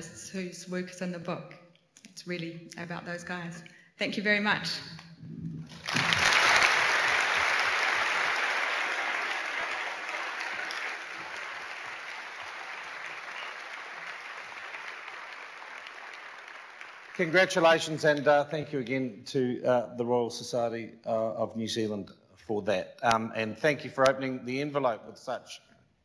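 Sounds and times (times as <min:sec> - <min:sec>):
audience applauding: 0:05.7 - 0:18.2.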